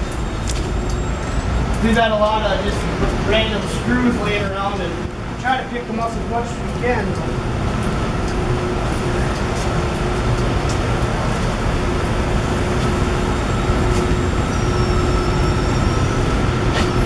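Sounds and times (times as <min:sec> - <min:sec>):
electric wheelbarrow hum and rumble: 0:06.5 - 0:17.0.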